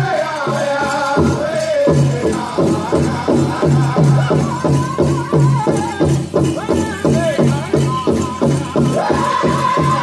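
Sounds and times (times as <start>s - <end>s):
big drum beating: 0.0s - 10.0s
singers' high wavering voices: 8.9s - 10.0s.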